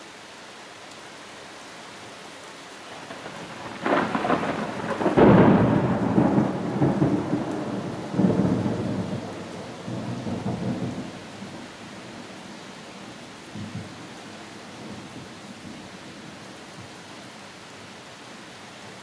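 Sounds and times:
steady background hiss: 0:00.0 - 0:19.0
thunder rolling: 0:03.0 - 0:11.2.

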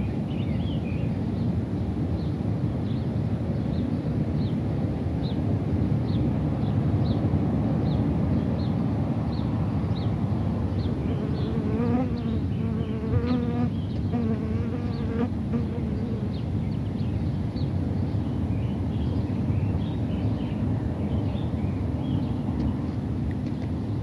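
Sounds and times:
insect buzzing: 0:11.1 - 0:16.4.

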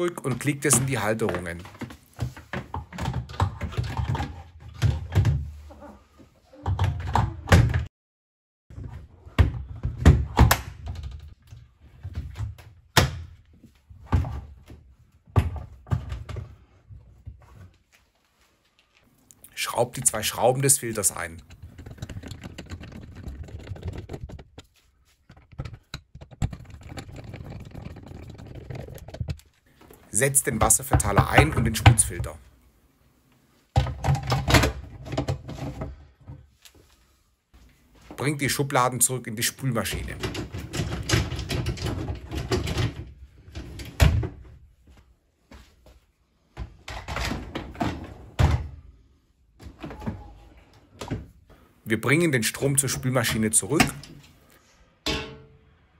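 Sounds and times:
dishwasher racks rattling: 0:39.9 - 0:44.4.

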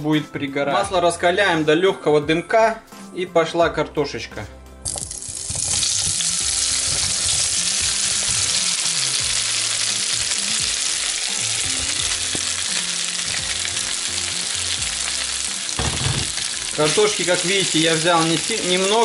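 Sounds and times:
potatoes sizzling in butter: 0:04.9 - 0:19.0.

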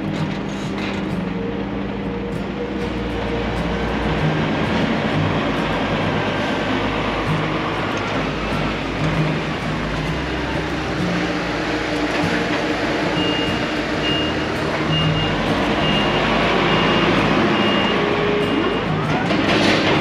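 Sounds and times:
truck diesel engine running: 0:00.0 - 0:20.0
reversing alarm beeping: 0:00.9 - 0:20.0.

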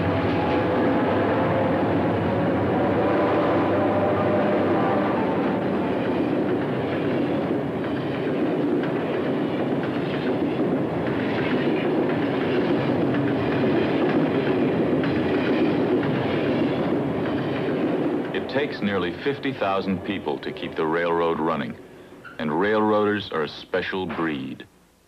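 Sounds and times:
train wheels clattering on rails: 0:05.5 - 0:21.3.

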